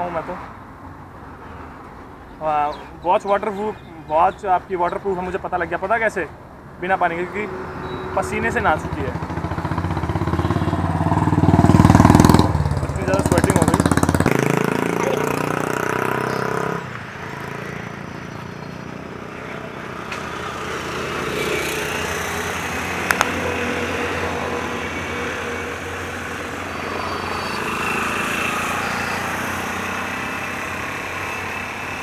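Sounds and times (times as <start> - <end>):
vehicle engines humming: 0.0 - 32.0
heavy truck passing: 7.0 - 32.0
sharp clicks: 23.1 - 23.3.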